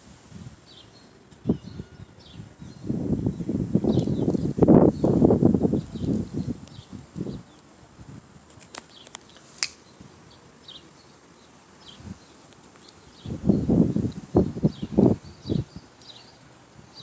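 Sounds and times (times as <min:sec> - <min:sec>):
faint high chirps: 0:00.8 - 0:02.9.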